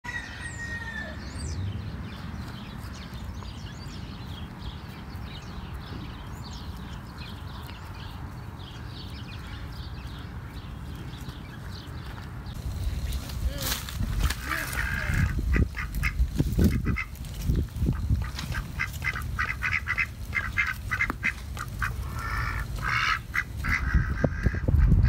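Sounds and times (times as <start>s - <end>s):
small birds chirping: 0.2s - 24.6s
steady low rumble: 1.4s - 25.0s.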